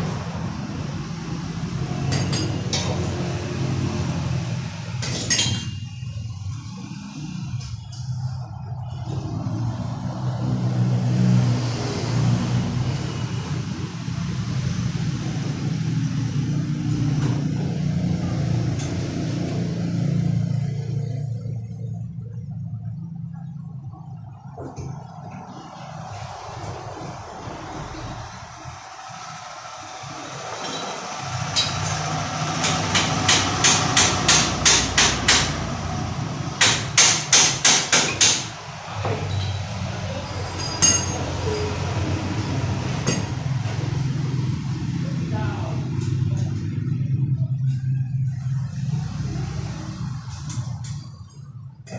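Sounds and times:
vehicle engine running: 0:05.9 - 0:37.0, 0:38.4 - 0:51.9
hammer striking steel frame: 0:30.6 - 0:35.7, 0:36.6 - 0:39.9, 0:40.6 - 0:41.4.

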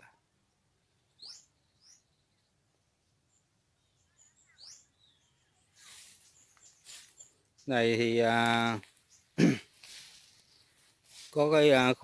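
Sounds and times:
faint bird chirps: 0:00.0 - 0:11.1
soft rustle: 0:05.7 - 0:07.5, 0:08.4 - 0:12.0.

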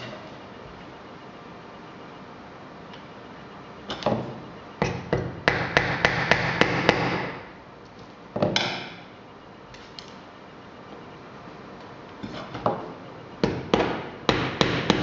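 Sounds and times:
hammer tapping pins: 0:04.8 - 0:07.4, 0:13.4 - 0:15.0.

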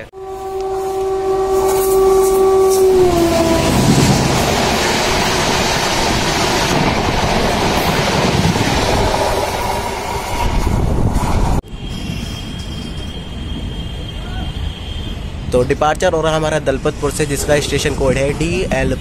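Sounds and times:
train horn blast: 0:00.0 - 0:04.5
train coaches rushing past: 0:00.3 - 0:19.0.

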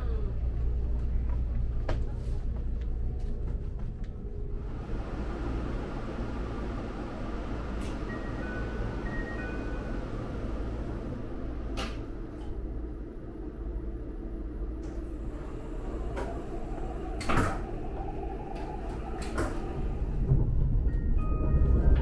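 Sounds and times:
low hum of train: 0:00.0 - 0:22.0
sliding train door clicking shut: 0:11.8 - 0:12.5, 0:15.8 - 0:19.9.

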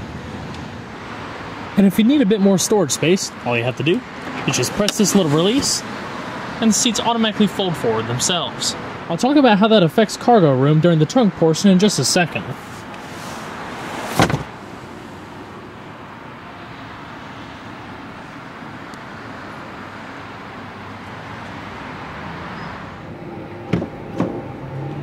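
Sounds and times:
background traffic noise: 0:00.0 - 0:25.0
car seatback latching thump: 0:13.9 - 0:14.6.

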